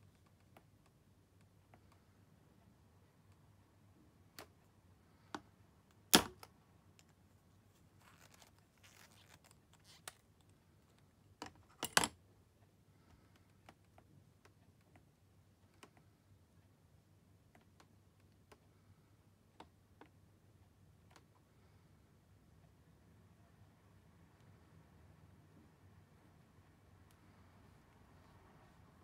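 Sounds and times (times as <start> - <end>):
soft rustle: 7.1 - 11.2.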